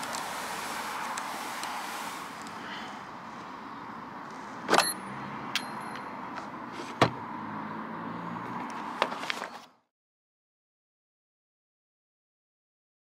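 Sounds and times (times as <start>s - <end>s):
background hiss: 0.0s - 3.0s.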